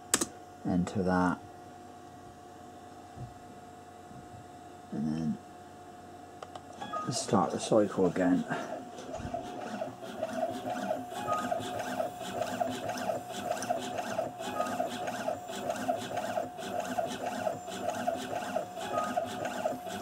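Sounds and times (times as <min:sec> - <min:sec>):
coil winding machine whine: 0:06.8 - 0:20.0.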